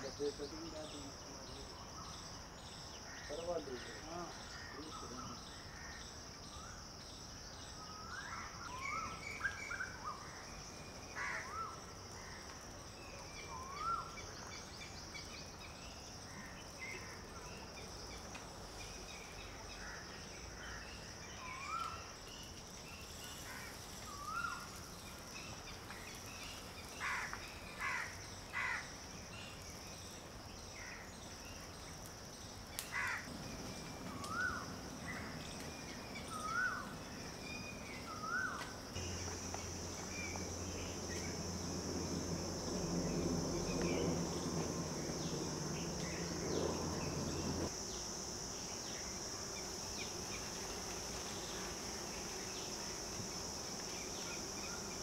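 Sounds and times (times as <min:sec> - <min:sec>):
high insect drone: 0:00.0 - 0:55.0
birds calling: 0:32.5 - 0:48.1.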